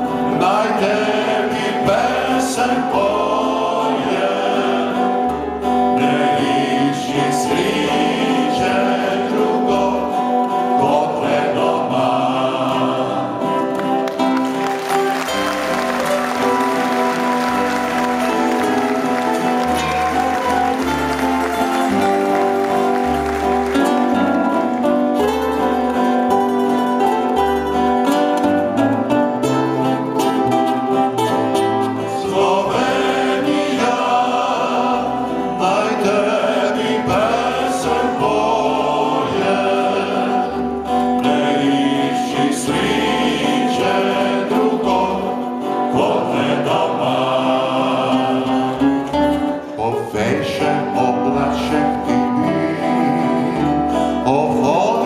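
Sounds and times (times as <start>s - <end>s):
male vocal group singing in harmony: 0.0s - 14.0s, 31.9s - 55.0s
acoustic guitar: 0.0s - 55.0s
strummed mandolin: 0.0s - 55.0s
audience applause: 13.7s - 26.0s.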